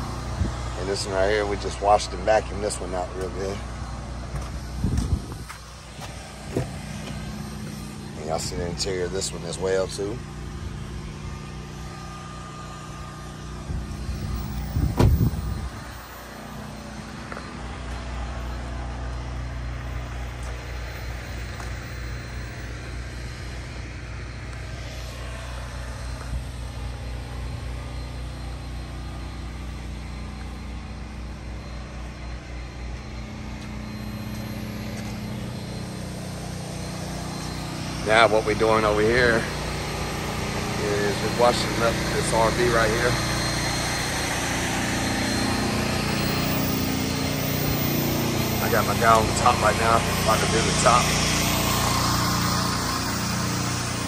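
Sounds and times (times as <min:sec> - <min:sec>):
motor humming: 0:00.0 - 0:54.0
loud thump: 0:14.8 - 0:15.4.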